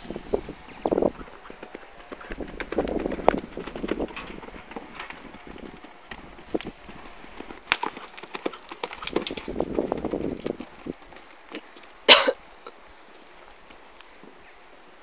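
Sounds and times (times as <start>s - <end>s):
horse hoofbeats on dirt: 0.1s - 12.0s.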